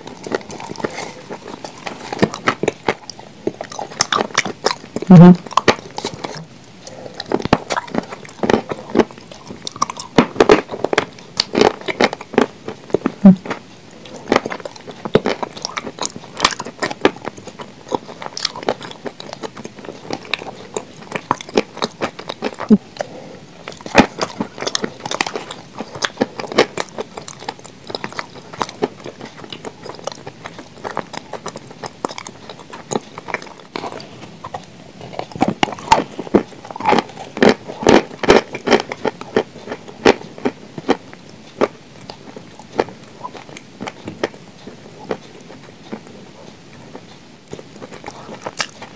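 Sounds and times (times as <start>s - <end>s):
chalk crunching while chewing: 0.0s - 48.9s.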